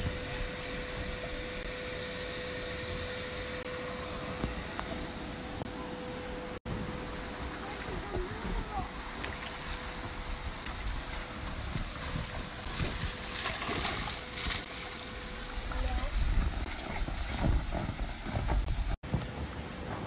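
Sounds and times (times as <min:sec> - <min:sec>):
water splashing in pool: 0:06.9 - 0:19.0
children's voices: 0:07.6 - 0:09.0
wind rumble on microphone: 0:15.3 - 0:20.0.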